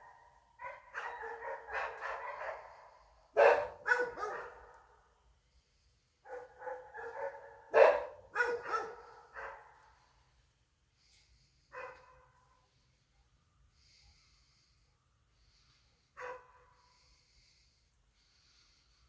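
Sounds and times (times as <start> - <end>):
dog barking and baying: 0.0 - 5.0, 6.2 - 9.8, 11.7 - 12.4, 16.2 - 16.7.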